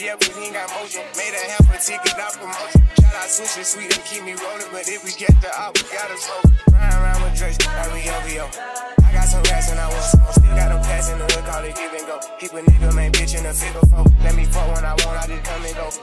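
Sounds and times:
hip-hop music: 0.0 - 16.0
deep bass notes: 6.7 - 11.8, 12.7 - 15.9.

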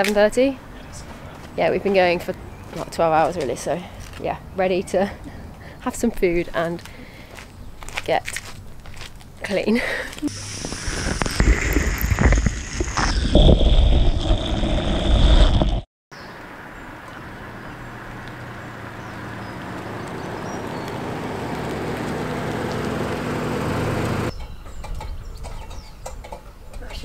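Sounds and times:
tyres on tarmac: 0.0 - 13.5, 14.2 - 27.0
car engine driving slowly: 16.2 - 24.4.

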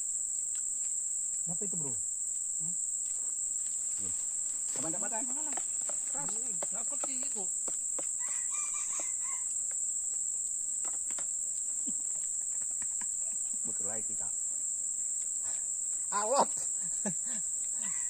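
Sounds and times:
insects droning: 0.0 - 18.0
men talking: 3.9 - 7.5, 13.5 - 14.4.

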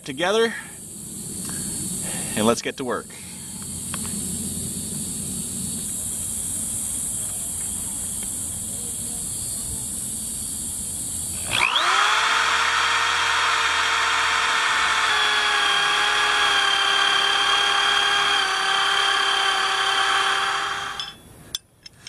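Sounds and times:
steady high hiss: 0.0 - 11.9
power drill boring through wood: 11.3 - 21.2.

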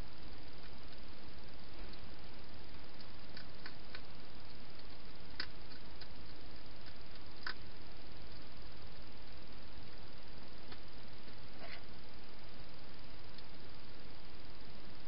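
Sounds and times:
steady hiss: 0.0 - 15.0
hedgehog chewing crunchily: 1.8 - 8.5.

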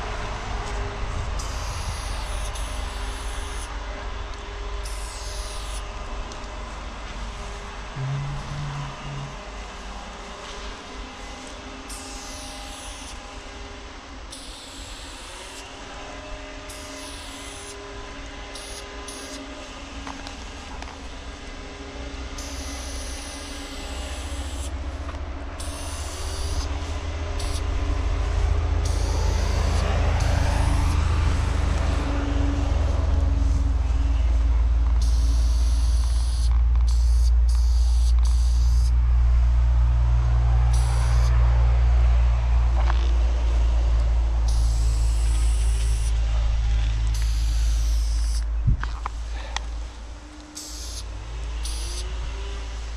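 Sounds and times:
steady low rumble: 0.0 - 11.9, 19.5 - 52.9
spray-paint can hissing: 27.4 - 27.6, 35.0 - 38.9, 47.2 - 48.4.

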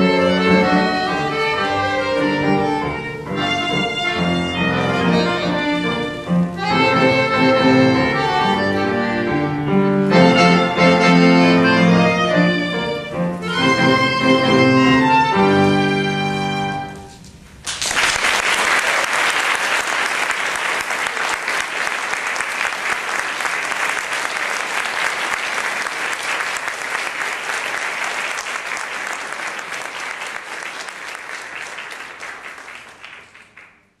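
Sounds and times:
audience applauding: 17.6 - 34.0.

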